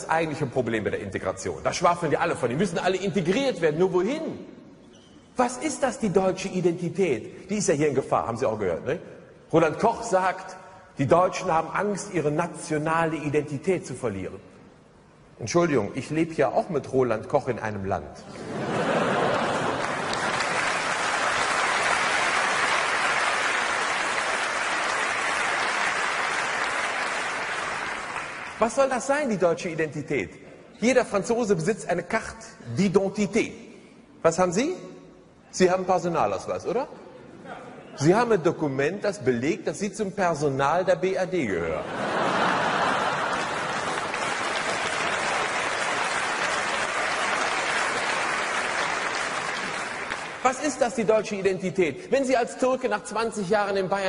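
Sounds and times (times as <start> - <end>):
audience applauding: 19.2 - 28.6, 42.4 - 50.6.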